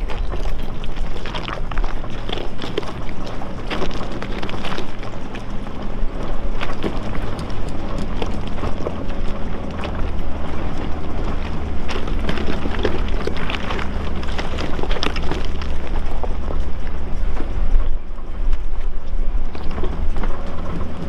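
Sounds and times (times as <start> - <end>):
car engine running: 0.0 - 21.0
tyres and suspension knocking: 0.0 - 21.0.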